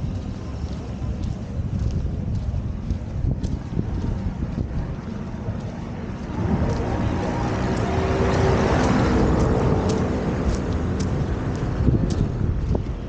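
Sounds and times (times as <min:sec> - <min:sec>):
wind buffeting microphone: 0:00.0 - 0:13.0
vehicle driving past: 0:04.8 - 0:12.8.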